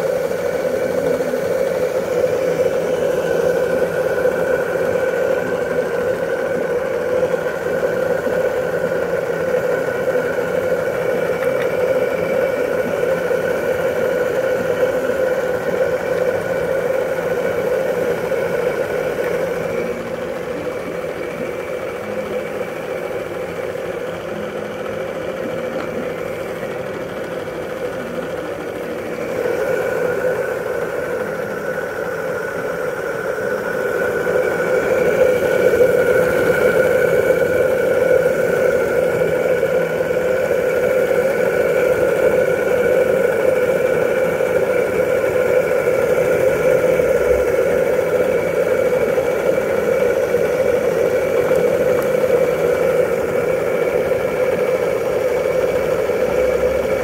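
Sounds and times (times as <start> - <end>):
small steam engine running: 0.0 - 57.0.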